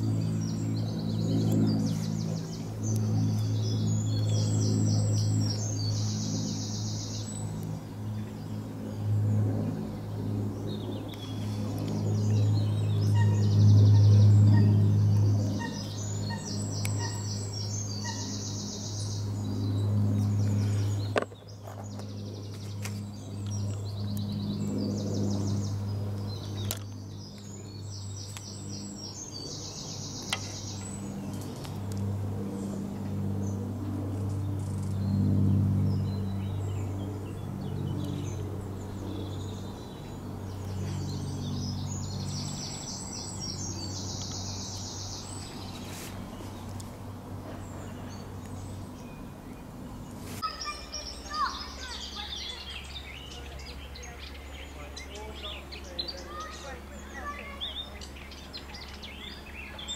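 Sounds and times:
songbirds singing: 0.0 - 59.9
steady low hum: 0.0 - 59.9.

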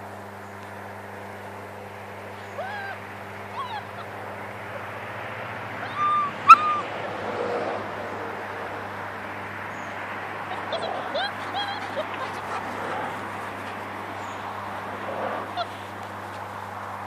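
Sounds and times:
outdoor background noise: 0.0 - 17.0
steady low hum: 0.0 - 17.0
puppies whimpering and yipping: 2.5 - 4.2, 5.8 - 6.9, 10.5 - 14.4, 15.4 - 15.8.

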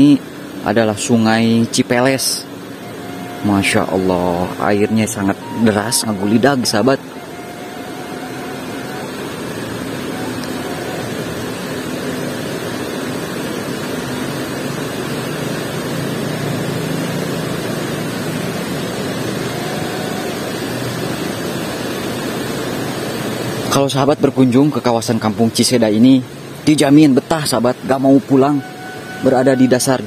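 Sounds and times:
river water rushing: 2.4 - 23.8, 27.6 - 30.0.

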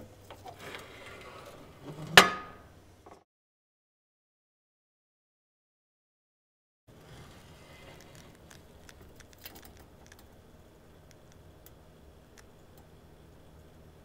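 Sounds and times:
furnace humming: 0.0 - 3.2, 6.9 - 14.0
small ticks and clicks: 7.8 - 10.4, 11.0 - 13.5.

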